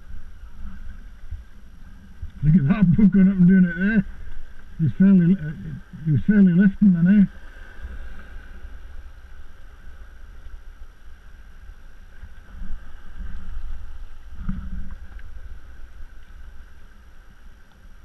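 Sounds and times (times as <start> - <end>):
water lapping against kayak hull: 0.0 - 18.0
wind rumble on microphone: 0.0 - 18.0.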